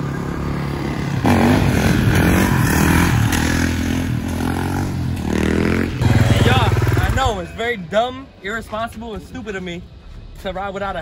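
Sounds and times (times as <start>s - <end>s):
dirt bike engine revving: 0.6s - 7.4s.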